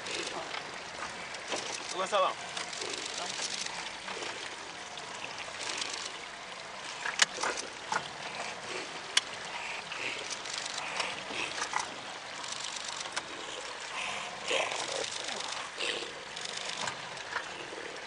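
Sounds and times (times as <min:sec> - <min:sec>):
small water splashes: 0:00.0 - 0:18.0
water sloshing and trickling: 0:00.0 - 0:18.0
sharp clicks: 0:01.5 - 0:03.7.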